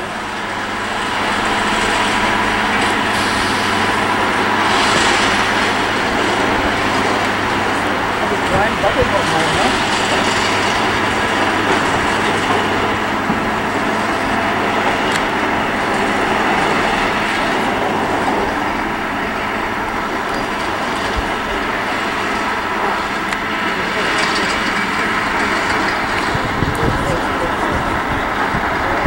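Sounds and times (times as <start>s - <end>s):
rack railway train running: 0.0s - 29.0s.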